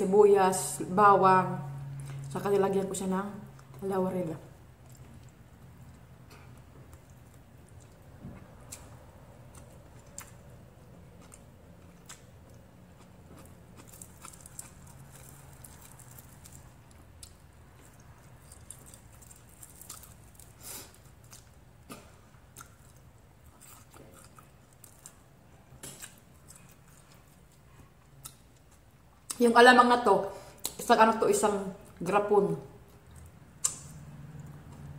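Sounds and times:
close-up chewing: 0:04.7 - 0:29.4.

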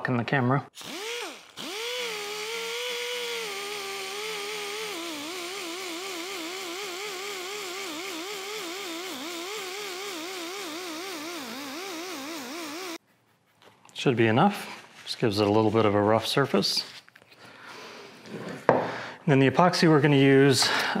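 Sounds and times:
die grinder whining: 0:00.8 - 0:13.0.

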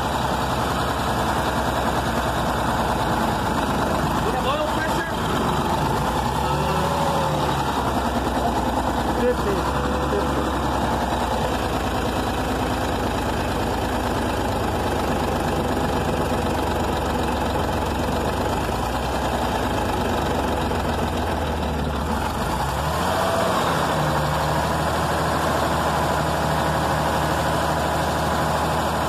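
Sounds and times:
diesel engine idling: 0:00.0 - 0:29.0.

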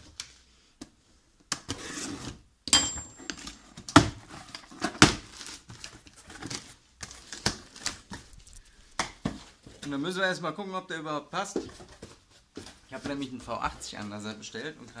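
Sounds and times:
cardboard box scraping open: 0:01.7 - 0:02.4.

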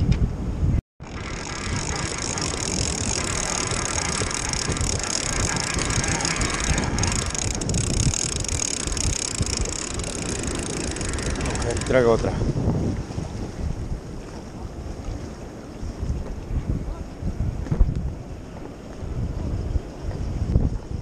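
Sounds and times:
wind buffeting microphone: 0:00.0 - 0:21.0
fishing reel whirring: 0:01.0 - 0:12.4
surf washing against rocks: 0:01.1 - 0:16.3.

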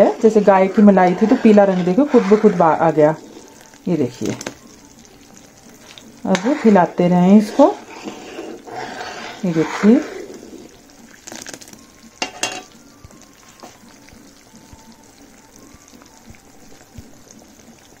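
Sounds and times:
metal ladle scraping a pan: 0:00.0 - 0:04.6, 0:05.8 - 0:10.8, 0:12.2 - 0:12.7
butter sizzling in a pan: 0:00.0 - 0:18.0.

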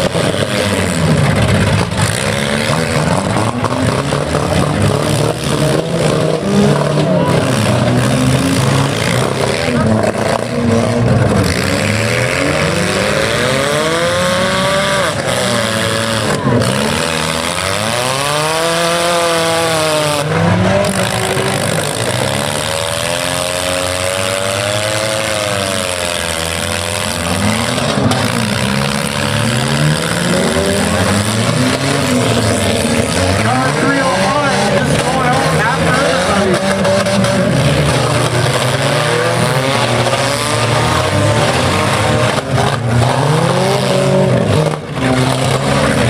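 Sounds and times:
car engines revving hard: 0:00.0 - 0:46.0.

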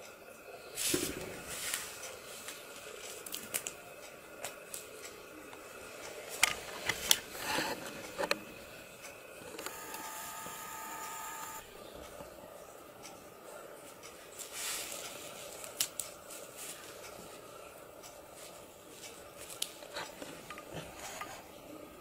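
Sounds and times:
faint steady ringing tone: 0:07.3 - 0:14.3.

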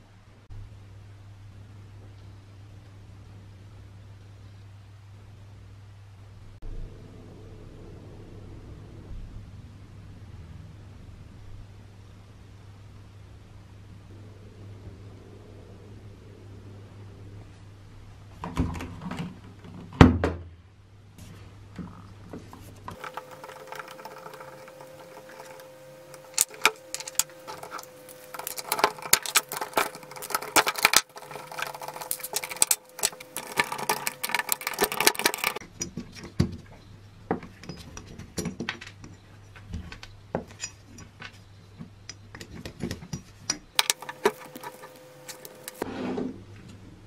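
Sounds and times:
faint steady hum: 0:00.0 - 0:47.0
metal parts clicking: 0:22.9 - 0:36.3, 0:42.1 - 0:45.8.

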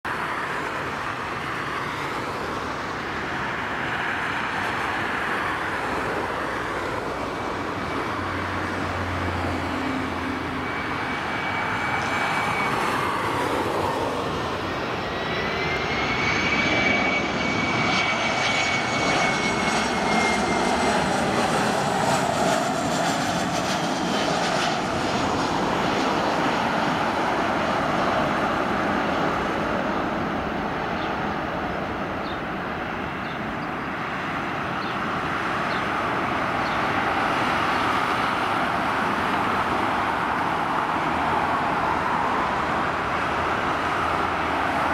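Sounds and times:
jet engines rushing: 0:00.1 - 0:44.9.

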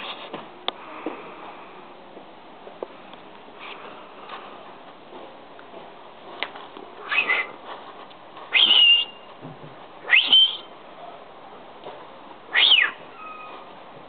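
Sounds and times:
small dog whining: 0:12.5 - 0:13.7.

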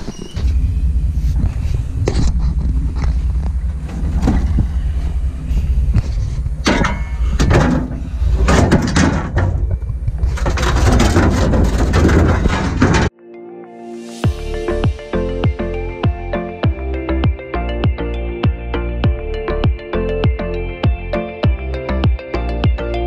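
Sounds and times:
low rumble: 0:00.0 - 0:13.1
tools clattering in truck bed: 0:06.6 - 0:13.1.

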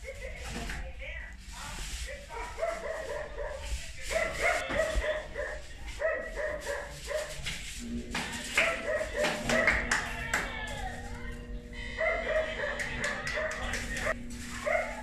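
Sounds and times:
dog barking: 0:02.2 - 0:07.6, 0:08.5 - 0:09.9, 0:11.8 - 0:15.0.

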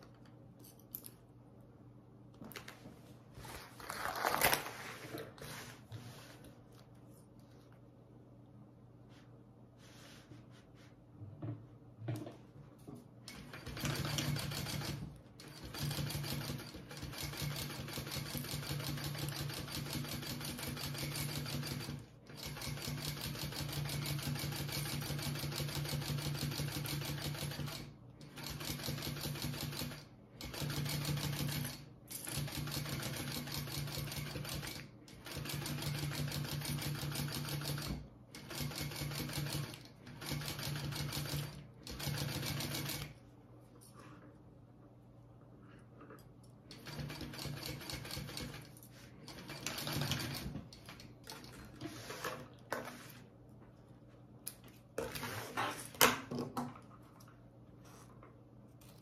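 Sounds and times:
sewing machine stitching: 0:13.3 - 0:43.2, 0:46.7 - 0:51.1.

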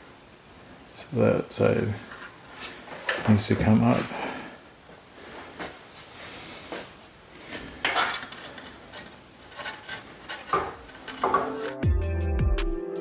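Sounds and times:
metal bracket clanking and scraping: 0:07.6 - 0:11.8.

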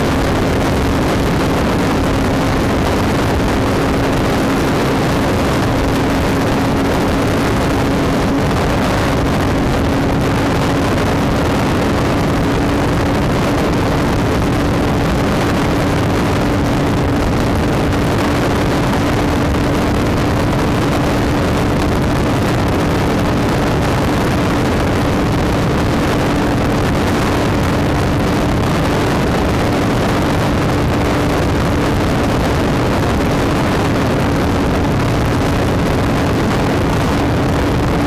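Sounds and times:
motorcycle engine cruising: 0:00.0 - 0:38.0
wind and road noise: 0:00.0 - 0:38.0.

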